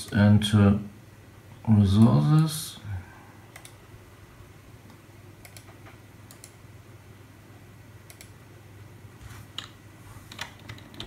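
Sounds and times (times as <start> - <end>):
low steady hum: 0.0 - 11.0
computer mouse or key clicks: 3.5 - 3.8, 4.9 - 6.6, 8.1 - 8.4.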